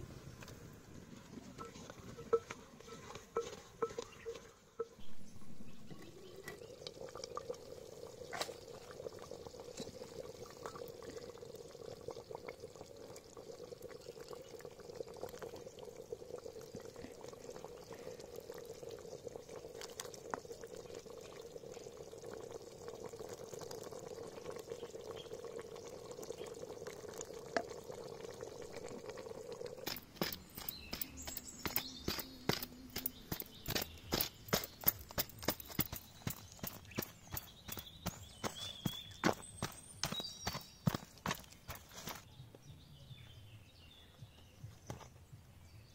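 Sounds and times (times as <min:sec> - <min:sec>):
curry bubbling in a pot: 0:05.6 - 0:42.3.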